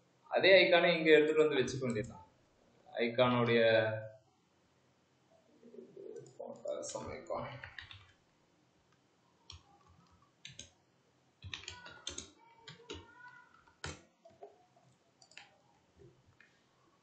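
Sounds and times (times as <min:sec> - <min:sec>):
computer keyboard keystrokes: 0:07.6 - 0:08.1, 0:09.5 - 0:10.7, 0:11.4 - 0:14.5.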